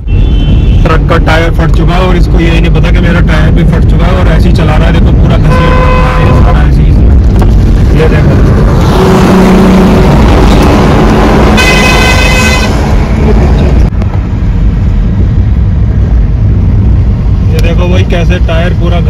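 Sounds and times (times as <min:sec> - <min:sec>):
vehicle horn honking: 0:00.0 - 0:00.9, 0:05.3 - 0:06.7, 0:11.2 - 0:12.9
road and engine rumble: 0:00.0 - 0:19.0.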